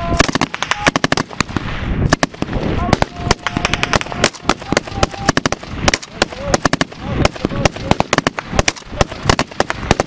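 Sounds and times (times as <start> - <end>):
faint voices shouting: 0.0 - 1.3, 2.6 - 8.1
rifle shots: 0.1 - 10.0.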